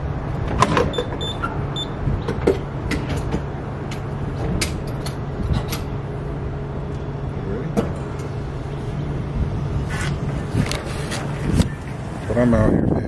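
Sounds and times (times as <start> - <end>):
steady low hum: 0.0 - 13.0
keypad beeping: 0.9 - 2.0.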